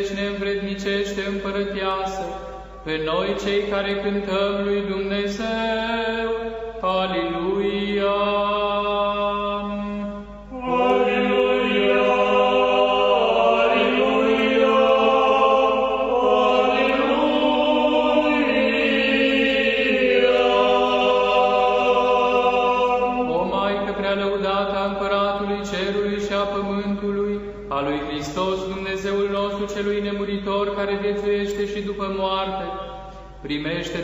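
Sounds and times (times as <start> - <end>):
choir chanting: 10.5 - 24.1.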